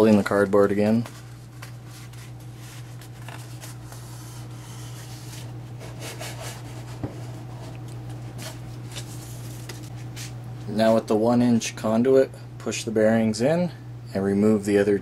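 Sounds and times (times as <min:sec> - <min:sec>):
cardboard rustling: 0:00.0 - 0:10.0
steady low hum: 0:00.0 - 0:15.0.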